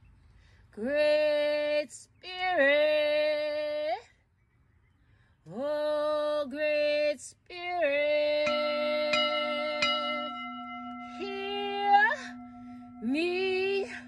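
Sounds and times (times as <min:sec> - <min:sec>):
woman singing wordless vowels: 0:05.5 - 0:14.0
steady held tone: 0:08.1 - 0:14.0.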